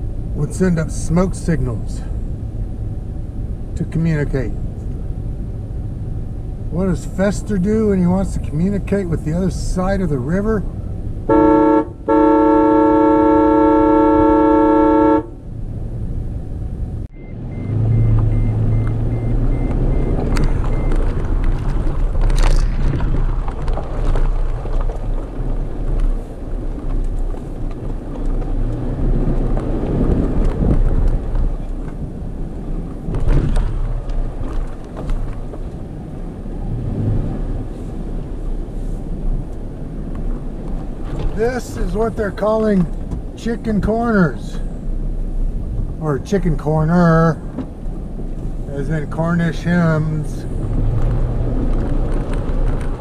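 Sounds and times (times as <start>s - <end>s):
car horn blasts: 11.3s - 15.4s
tyres rolling over rocky trail: 20.1s - 36.0s, 49.1s - 53.0s.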